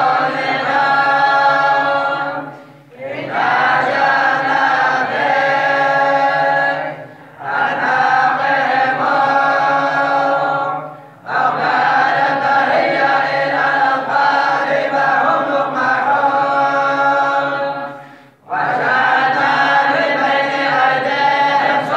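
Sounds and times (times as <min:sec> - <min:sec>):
group chanting in unison: 0:00.0 - 0:21.9.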